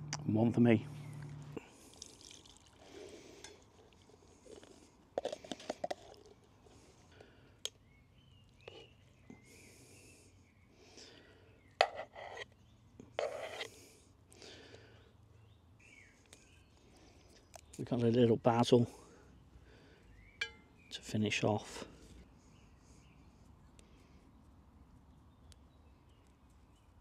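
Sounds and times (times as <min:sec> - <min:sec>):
bird chirps: 0:07.8 - 0:11.8, 0:15.0 - 0:19.2, 0:20.1 - 0:21.4.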